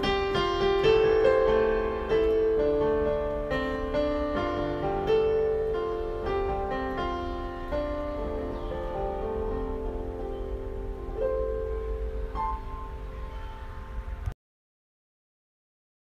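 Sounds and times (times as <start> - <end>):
slow solo piano melody: 0.0 - 14.3.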